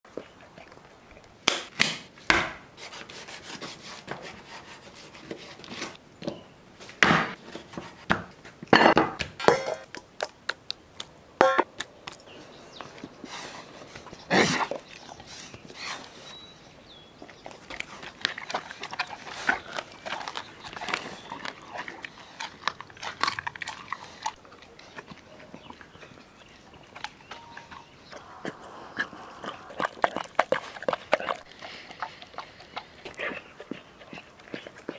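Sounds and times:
metal bowl knocking: 0:09.4 - 0:09.9
dog chewing raw meat: 0:17.1 - 0:34.9.

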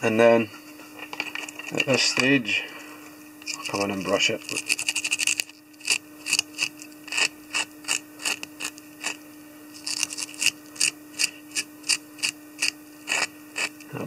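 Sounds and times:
small brush rasping: 0:03.4 - 0:14.0.

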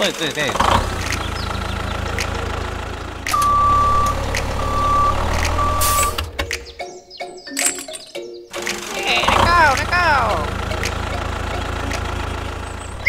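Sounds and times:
vehicle engine running: 0:00.0 - 0:06.4, 0:09.0 - 0:13.0
reversing alarm beeping: 0:03.3 - 0:06.3.

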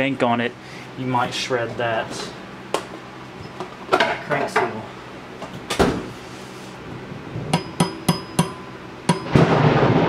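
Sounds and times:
hammer tapping on metal: 0:07.5 - 0:09.3
thunder clap and rumble: 0:09.3 - 0:10.0.

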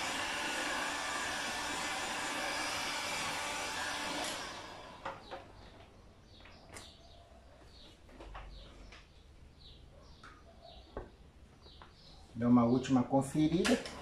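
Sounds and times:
heat gun blowing: 0:00.0 - 0:05.4
heat gun spinning down: 0:00.0 - 0:05.5.

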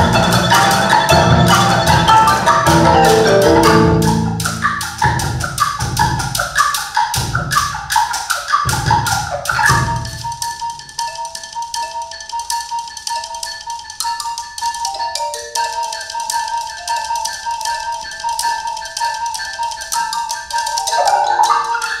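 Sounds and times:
marimbas and xylophones: 0:00.0 - 0:22.0.

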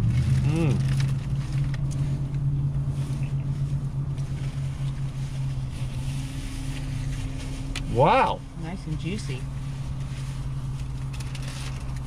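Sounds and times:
car engine idling: 0:00.0 - 0:12.0
wrapper paper rustling: 0:10.0 - 0:12.0.

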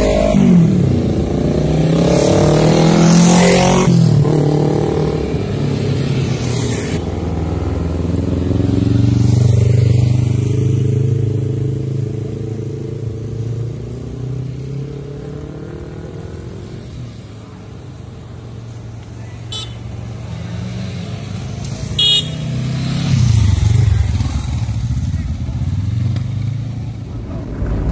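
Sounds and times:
motorcycles and cars passing: 0:00.0 - 0:27.9
short horn beep: 0:22.0 - 0:22.5.

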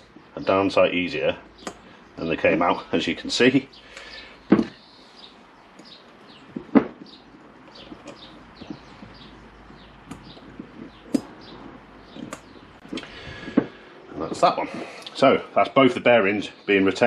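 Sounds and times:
small birds chirping: 0:00.0 - 0:17.0
sharp metallic clicks: 0:01.6 - 0:01.9.

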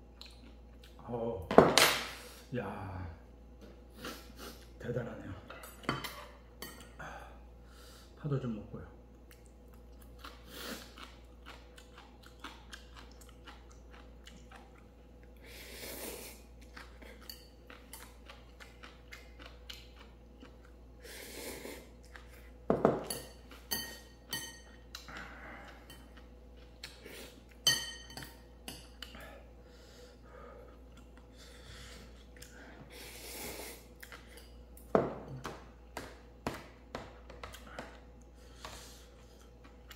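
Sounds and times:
chewing and slurping noodles: 0:09.3 - 0:22.6
utensils clinking against bowl: 0:22.7 - 0:24.8, 0:27.6 - 0:29.0.

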